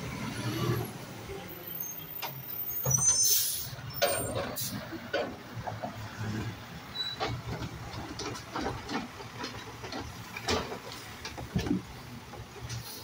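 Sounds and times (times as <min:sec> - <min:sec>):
clunks and knocks of arm and cart: 0:04.0 - 0:13.0.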